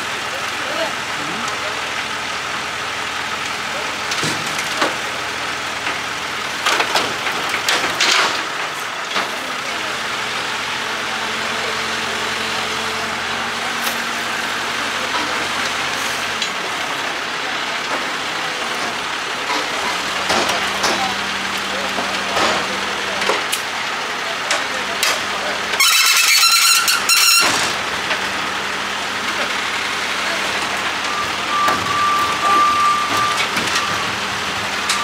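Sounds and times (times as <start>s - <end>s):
diesel engine running: 0.0s - 35.0s
sharp knocks and clatter: 6.6s - 9.4s, 19.5s - 21.2s, 22.0s - 23.7s.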